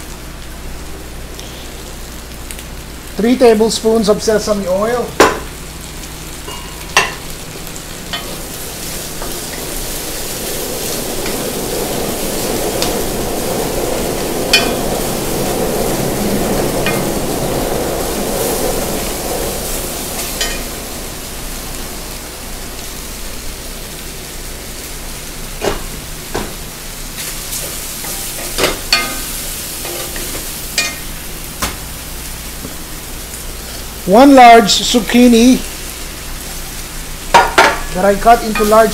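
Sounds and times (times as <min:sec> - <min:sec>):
food sizzling in a wok: 0:00.0 - 0:38.9.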